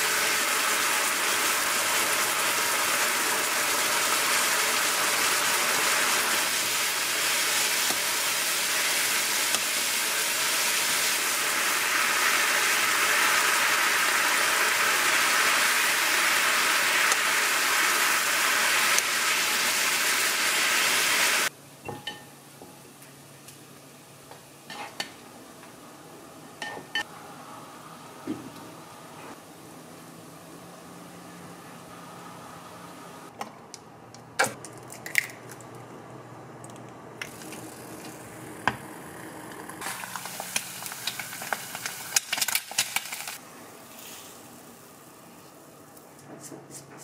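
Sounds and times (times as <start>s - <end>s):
food sizzling in a frying pan: 0.0s - 21.5s, 39.6s - 44.9s.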